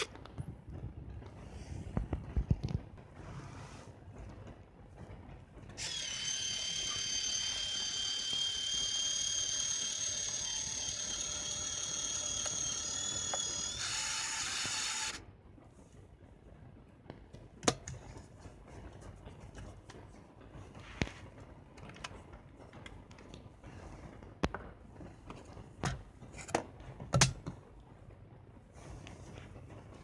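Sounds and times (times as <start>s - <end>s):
camera film-rewind motor whine: 5.8s - 15.2s.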